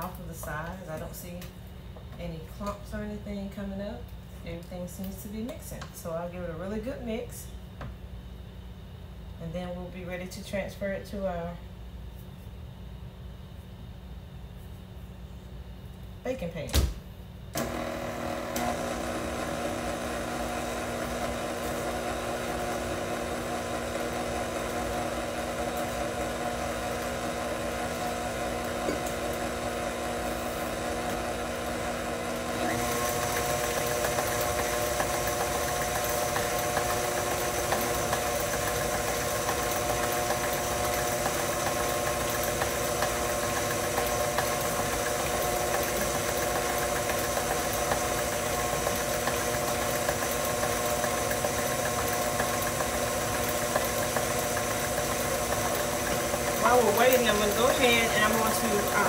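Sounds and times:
stand mixer running: 17.6s - 59.0s.

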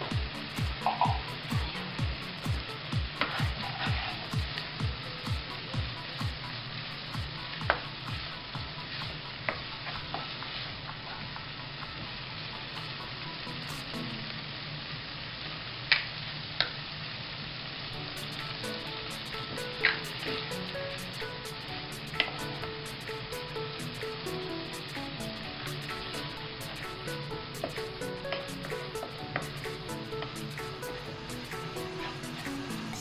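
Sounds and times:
meat sizzling in oil: 0.0s - 33.0s
wooden spoon scraping a pan: 3.2s - 4.3s.

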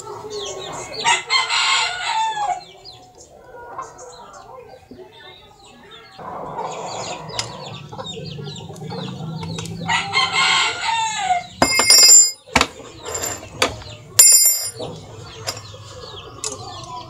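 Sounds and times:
chickens clucking: 0.0s - 11.6s, 12.4s - 14.2s, 14.8s - 17.0s
rooster crowing: 1.0s - 2.7s, 9.8s - 12.2s
metal-on-metal clink: 11.6s - 14.8s, 15.4s - 15.7s.

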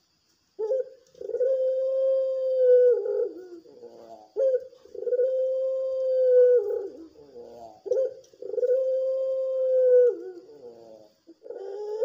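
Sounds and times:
dove cooing: 0.6s - 12.0s.

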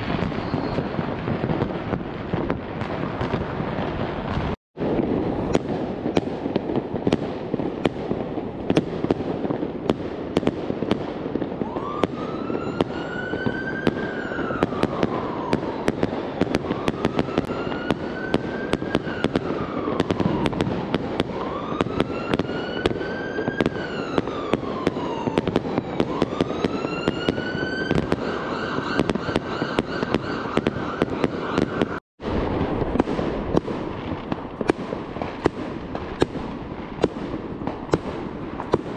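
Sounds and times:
firecrackers crackling: 0.0s - 38.9s
rockets bursting: 0.0s - 38.9s
siren wailing: 11.6s - 32.0s.

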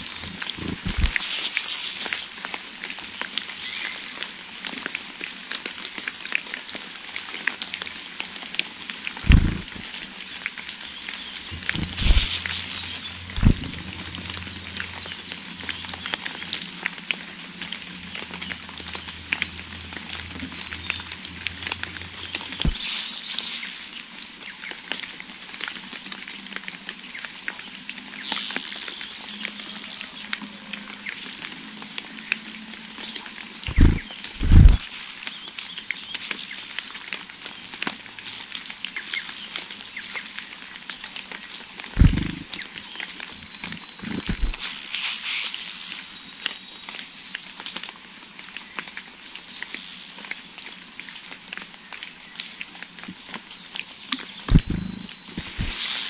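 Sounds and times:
nestling birds begging chirps: 0.0s - 6.3s, 9.1s - 15.9s, 22.0s - 56.0s
soft thumps at nest: 9.3s - 9.7s, 11.5s - 12.6s, 13.3s - 13.8s, 33.7s - 34.8s, 42.0s - 42.4s, 44.1s - 44.6s, 54.5s - 55.7s.

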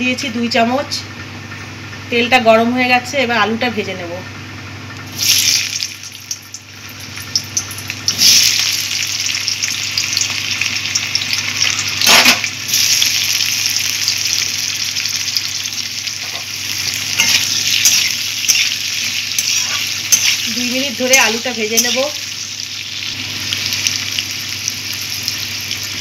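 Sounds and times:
potatoes sizzling in hot oil: 5.1s - 26.0s
metal spatula stirring: 17.2s - 22.2s.

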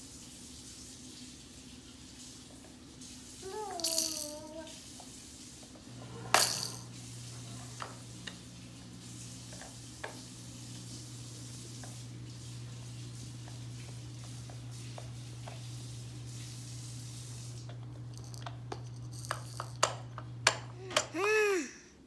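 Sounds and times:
toy rattling: 3.4s - 4.7s, 6.3s - 6.9s, 18.0s - 20.1s
baby whining: 3.4s - 4.8s, 20.8s - 22.0s
toy clattering: 3.5s - 4.7s, 6.3s - 6.9s, 18.1s - 21.2s.

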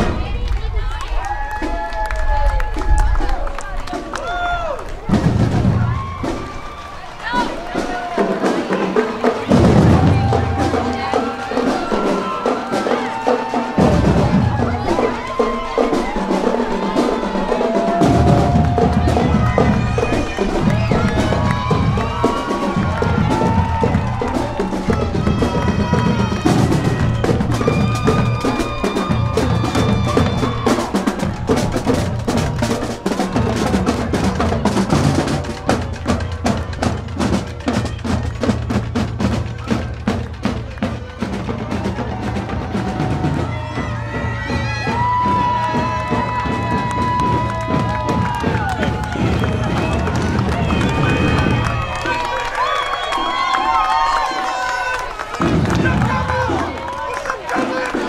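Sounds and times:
music with drums and bass: 13.8s - 51.7s.

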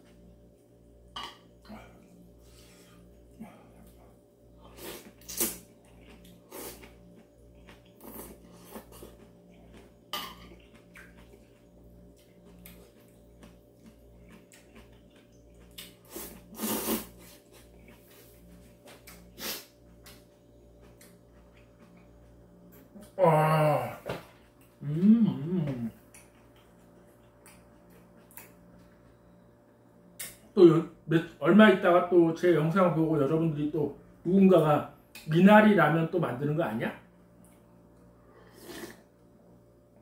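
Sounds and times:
man slurping ramen noodles: 16.0s - 17.4s, 38.5s - 39.1s.

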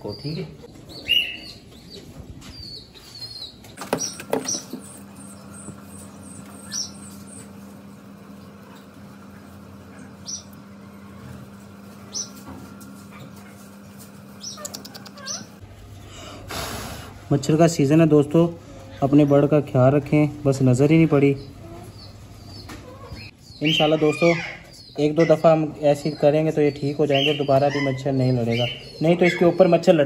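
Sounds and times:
high bird chirps: 0.0s - 7.5s, 14.4s - 15.6s, 21.4s - 29.9s.

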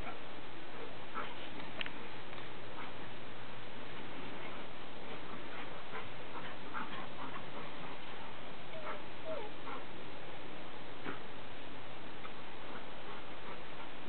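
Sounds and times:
steady background hiss: 0.0s - 14.0s
dog barking: 8.8s - 9.8s.

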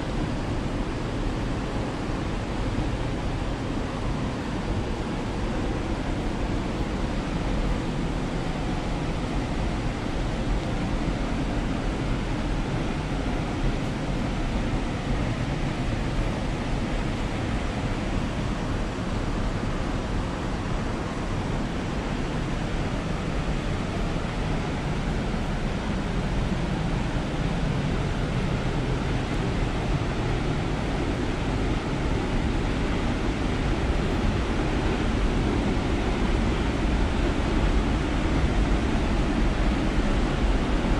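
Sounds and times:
rushing water of waterfall: 0.0s - 40.9s.

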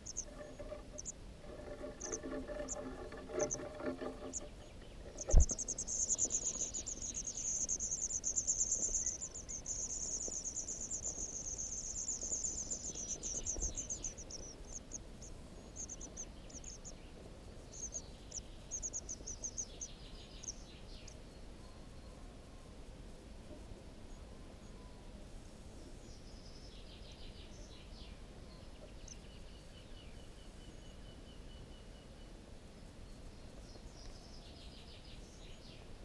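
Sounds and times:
nestlings begging calls: 0.0s - 17.0s, 17.7s - 20.6s.

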